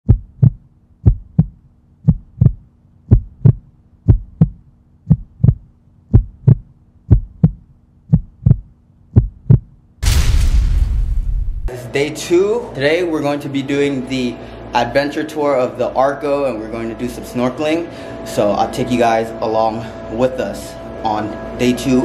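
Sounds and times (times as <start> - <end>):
heartbeat thumps: 0.0 - 9.8
faint steady hum: 0.1 - 10.0, 11.2 - 22.0.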